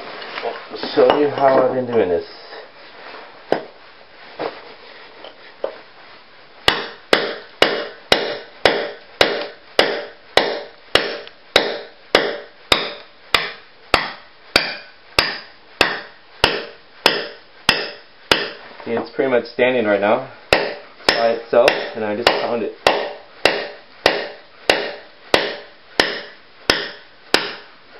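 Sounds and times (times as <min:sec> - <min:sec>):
hammer striking steel chisel: 0:06.7 - 0:18.6, 0:20.5 - 0:27.7.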